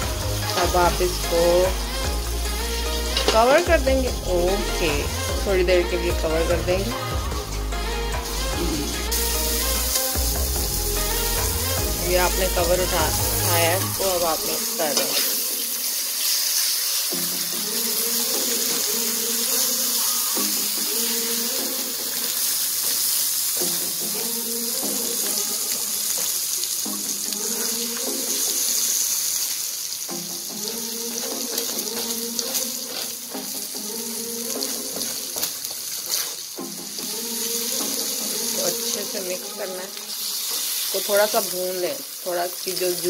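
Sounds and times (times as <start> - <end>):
food sizzling in oil: 0.0 - 43.0.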